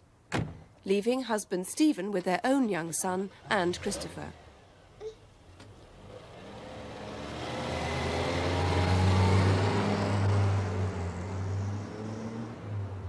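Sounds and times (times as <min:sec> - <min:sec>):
car driving past: 0:05.6 - 0:13.0.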